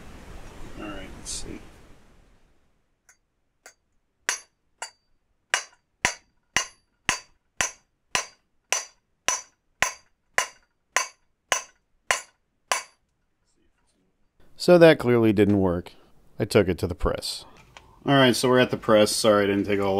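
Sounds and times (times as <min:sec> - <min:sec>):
hammer striking metal shaft: 0:03.1 - 0:13.0.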